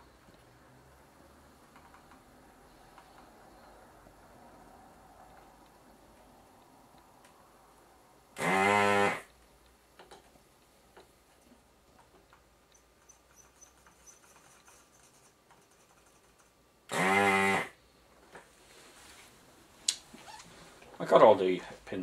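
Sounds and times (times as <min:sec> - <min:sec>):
desoldering pump buzzing: 0:08.4 - 0:09.4, 0:16.9 - 0:17.8.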